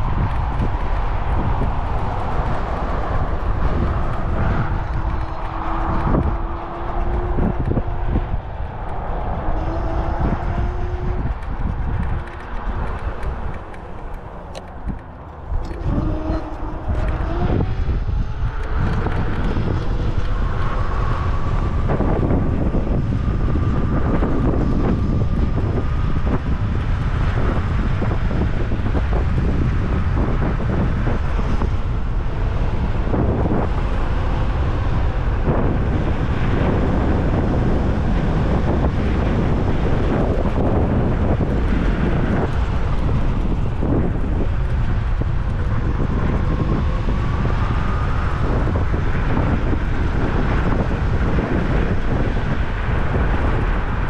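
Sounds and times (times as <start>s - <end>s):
scooter tyre rumble: 0.0s - 54.0s
wind buffeting microphone: 0.0s - 54.0s
electric motor whine: 12.8s - 52.5s.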